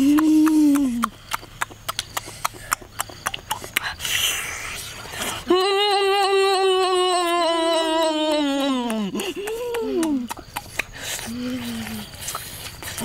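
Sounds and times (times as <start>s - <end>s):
boy humming: 0.0s - 1.2s, 5.3s - 10.6s, 11.2s - 12.2s
chewing clicks: 0.0s - 4.3s, 8.6s - 13.0s.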